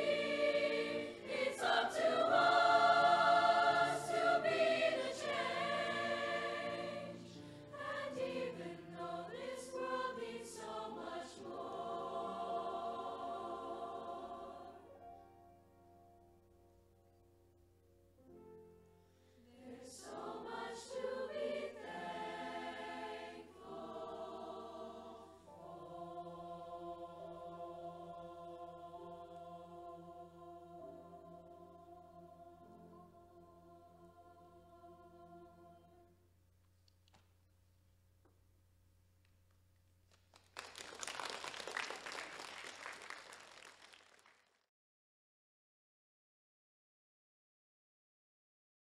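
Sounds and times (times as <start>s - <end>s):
chorus singing sustained chords: 0.0s - 14.9s, 19.4s - 36.2s
audience applauding: 40.2s - 44.6s.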